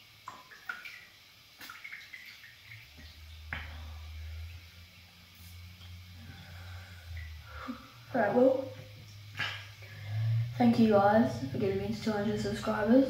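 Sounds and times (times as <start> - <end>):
bath water dripping and splashing: 0.0 - 6.2, 7.0 - 10.5
low steady hum: 0.0 - 13.0.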